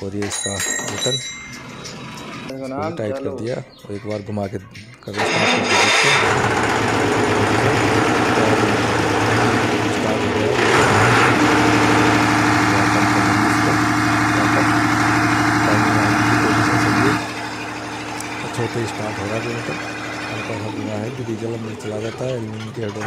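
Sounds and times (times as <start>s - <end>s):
diesel generator engine running: 5.1s - 23.0s.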